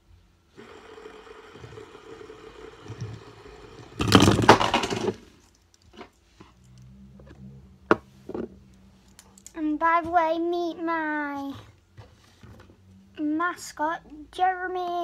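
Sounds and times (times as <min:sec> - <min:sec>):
fidget spinners whirring: 0:00.6 - 0:05.0
metal spinners clattering onto table: 0:04.0 - 0:05.3.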